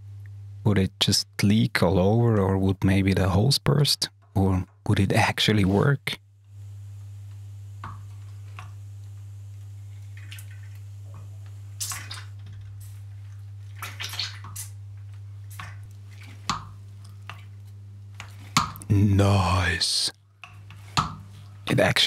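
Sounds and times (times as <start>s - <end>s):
steady low hum: 0.0s - 22.0s
squishy wet pumping sounds: 10.0s - 18.9s.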